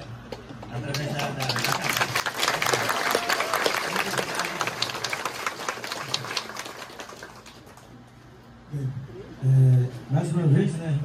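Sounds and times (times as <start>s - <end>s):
crowd applauding: 0.8s - 8.1s.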